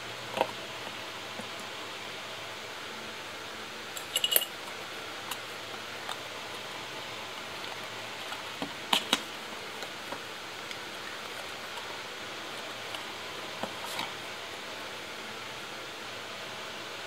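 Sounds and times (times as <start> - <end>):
metal tool clinking: 4.0 - 4.6.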